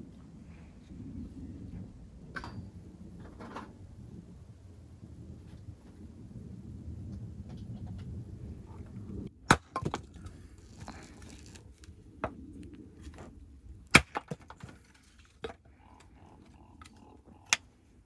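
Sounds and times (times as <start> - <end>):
hatchet splitting firewood: 9.4 - 11.9, 13.9 - 15.6.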